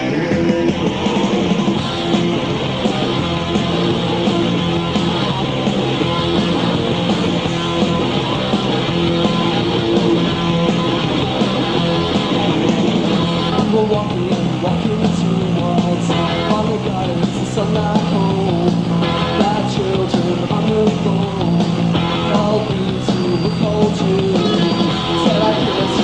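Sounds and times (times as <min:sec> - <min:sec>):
live punk rock band: 0:00.0 - 0:26.0.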